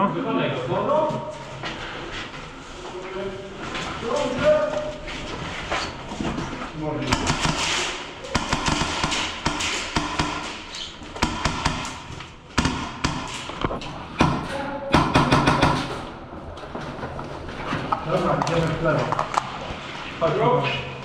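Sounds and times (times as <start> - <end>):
muffled voices: 0.0 - 8.5, 13.6 - 15.1, 17.7 - 21.0
sharp taps and thuds: 7.1 - 16.0.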